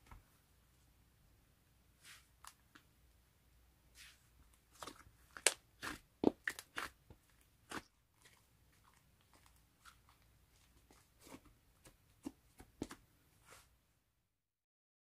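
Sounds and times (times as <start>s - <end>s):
slime squishing and popping: 4.8s - 7.0s.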